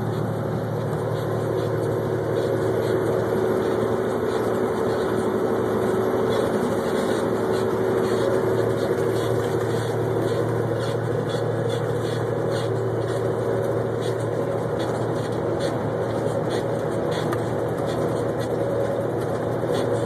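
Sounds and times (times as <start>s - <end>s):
truck diesel engine drone: 0.0s - 20.0s.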